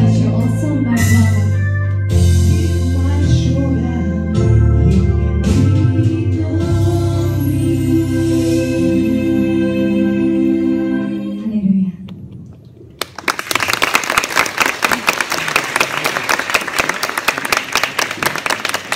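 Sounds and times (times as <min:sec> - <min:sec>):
gospel choir singing: 0:05.6 - 0:11.5
audience applause: 0:13.0 - 0:18.9.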